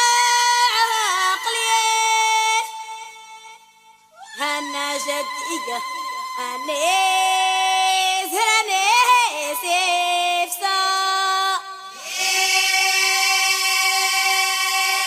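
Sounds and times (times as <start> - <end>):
girls singing a chant: 4.4 - 15.0.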